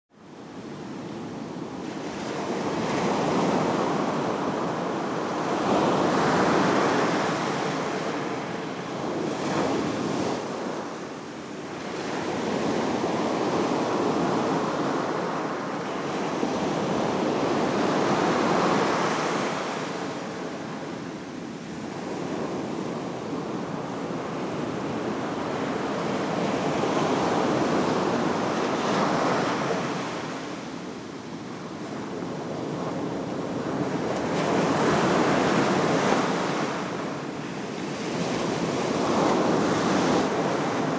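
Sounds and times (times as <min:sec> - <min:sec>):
ocean surf breaking on beach: 0:01.9 - 0:40.9.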